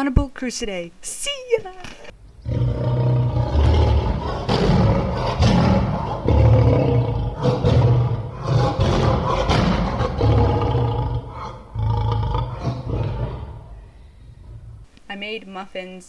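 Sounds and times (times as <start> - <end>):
woman roaring like a lion: 2.4 - 13.7.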